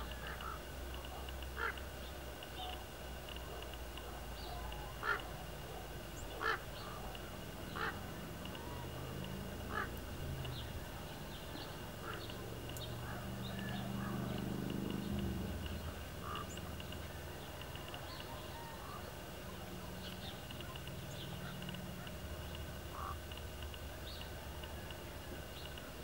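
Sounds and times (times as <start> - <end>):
faint high whine: 0.0 - 26.0
low droning hum: 0.0 - 26.0
short bird calls: 4.4 - 15.2, 22.8 - 23.3.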